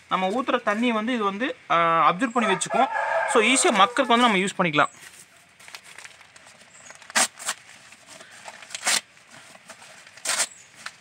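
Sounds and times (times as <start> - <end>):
newspaper crumpling and rustling: 5.0 - 11.0.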